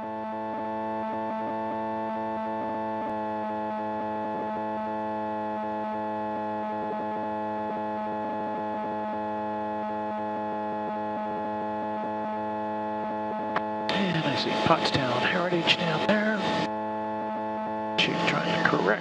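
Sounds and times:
aircraft engine and propeller hum: 10.2 - 19.0.

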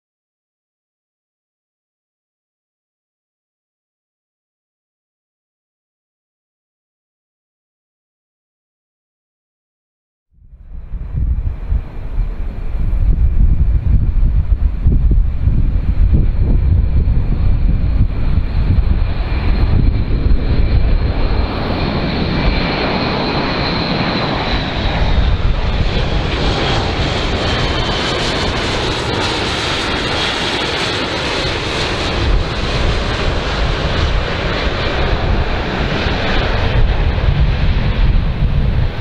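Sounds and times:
high whine: 10.4 - 39.0
turboprop engines running: 10.4 - 39.0.

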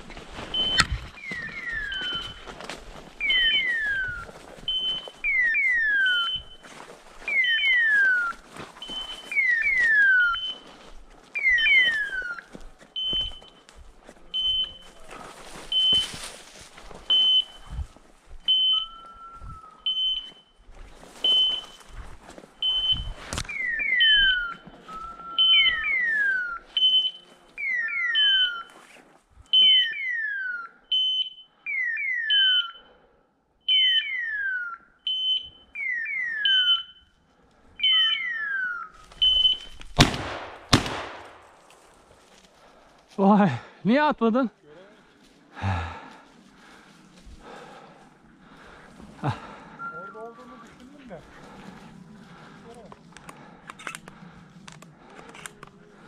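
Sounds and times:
brush and leaves crackling underfoot: 0.0 - 27.7, 38.9 - 43.4, 44.4 - 56.0
electronic collar beeping: 0.5 - 2.5, 3.2 - 6.7, 13.0 - 13.7, 14.3 - 15.1, 18.5 - 22.0, 22.6 - 28.7, 35.1 - 37.1
falling electronic chirps: 0.5 - 2.5, 3.2 - 10.8, 22.6 - 28.7.

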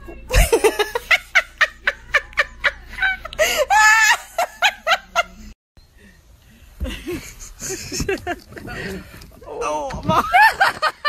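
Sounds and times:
person laughing: 0.3 - 5.5, 6.8 - 9.1, 10.0 - 11.0.

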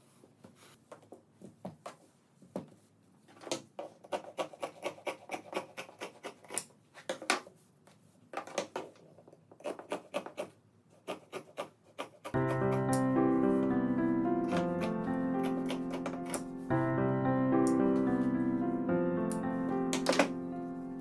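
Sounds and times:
shears snipping fabric: 4.0 - 6.7, 9.6 - 13.0, 14.5 - 16.5.

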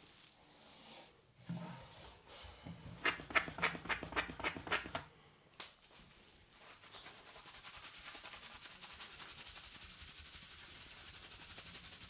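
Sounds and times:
hands rubbing shampoo lather: 5.8 - 12.0.

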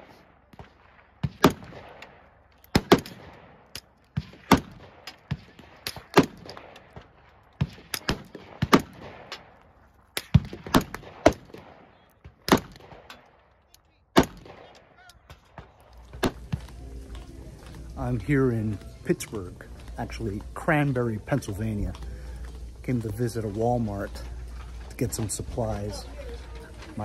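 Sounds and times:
rifle shots: 0.0 - 9.6, 10.2 - 13.5, 14.1 - 16.6
fainter distant shots: 0.0 - 17.9.

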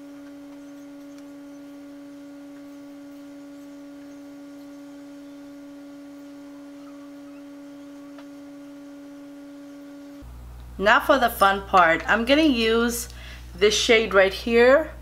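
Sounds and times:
steady electronic tone: 0.0 - 10.2.

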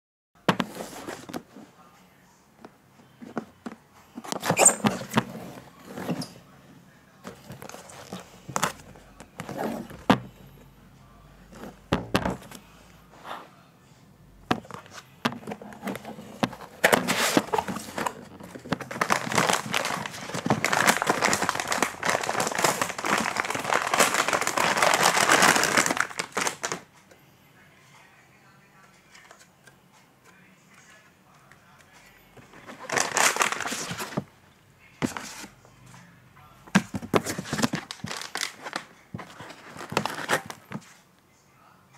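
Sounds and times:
cardboard scraping and rustling: 0.5 - 1.6, 4.2 - 6.4, 9.4 - 10.3, 14.5 - 26.8, 32.5 - 34.3, 36.8 - 41.0.

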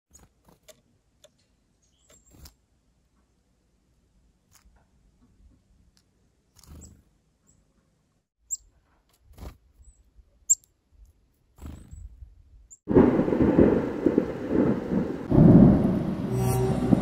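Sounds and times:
bird chirping: 1.3 - 2.5, 8.4 - 8.8.

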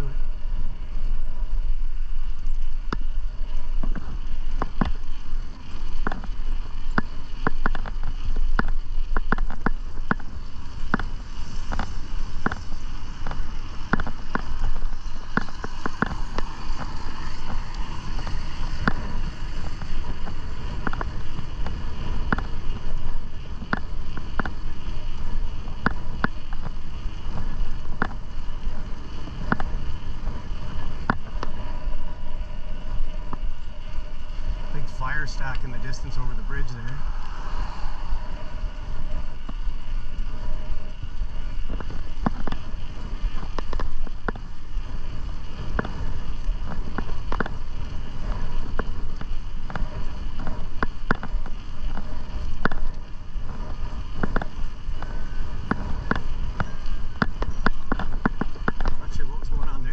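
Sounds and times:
wind rushing on microphone: 0.0 - 59.9
bike clicks and rattles: 2.1 - 37.0, 38.2 - 59.9.

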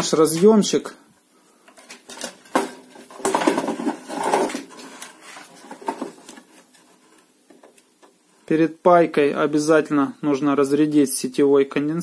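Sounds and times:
hands handling circuit board: 1.7 - 8.2
clattering rattle: 2.1 - 4.8.

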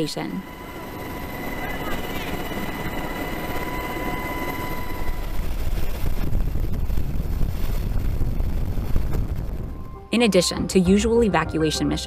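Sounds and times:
helicopter engine and rotor rumble: 0.0 - 6.9
high-pitched whine: 0.0 - 7.1.

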